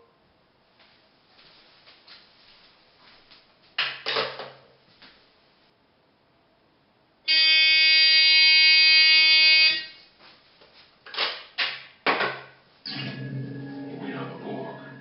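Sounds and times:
electronic phone ring buzzing: 7.3s - 10.0s.

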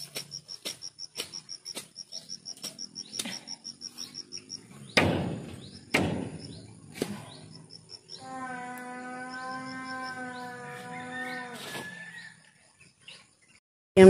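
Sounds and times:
snaps and knocks from weeding: 0.0s - 3.5s
cricket chirping: 0.0s - 13.6s.

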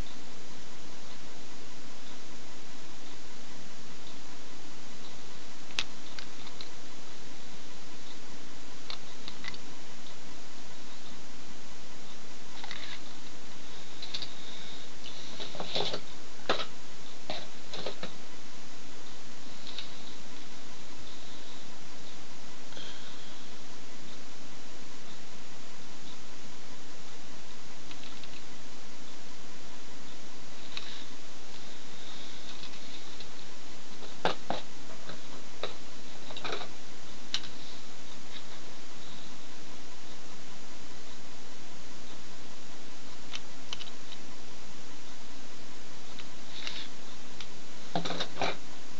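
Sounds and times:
steady hiss: 0.0s - 48.9s.

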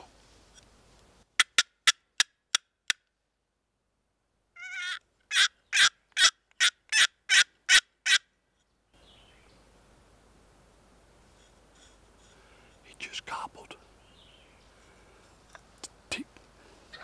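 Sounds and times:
turkey yelping: 4.6s - 8.2s.

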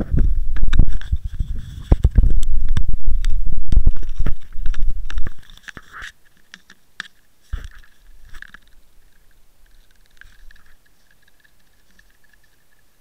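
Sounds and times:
clicks and scrapes on camera housing: 0.0s - 12.9s.

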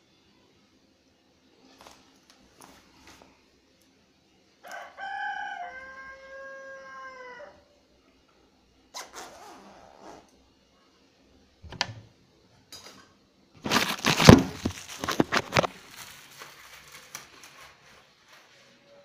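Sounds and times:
phone handling rustling and bumps: 13.6s - 15.8s.

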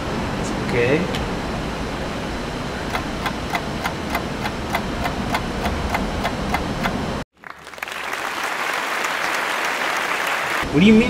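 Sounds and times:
steady ticking: 2.9s - 7.0s.

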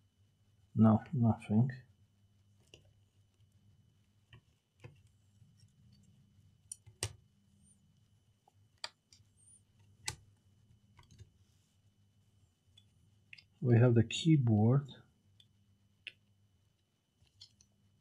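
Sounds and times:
small parts clicking and tapping: 4.3s - 7.2s, 15.3s - 17.8s.

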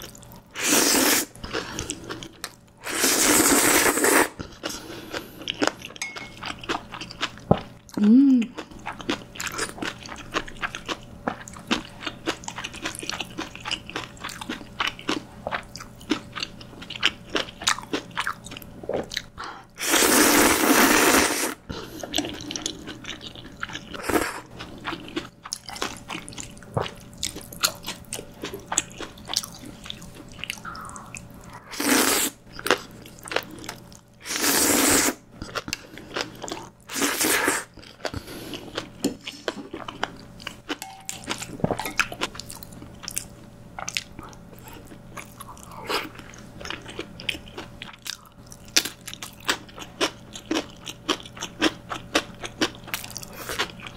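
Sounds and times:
slurping noodles: 0.6s - 5.3s, 19.8s - 22.8s, 30.7s - 32.4s, 34.2s - 35.2s, 36.9s - 38.8s.

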